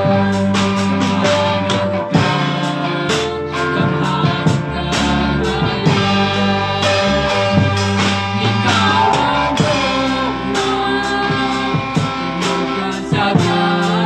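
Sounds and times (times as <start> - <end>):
guitar with steady beat: 0.0 - 13.9
man and woman singing duet: 3.5 - 7.6, 8.4 - 14.0.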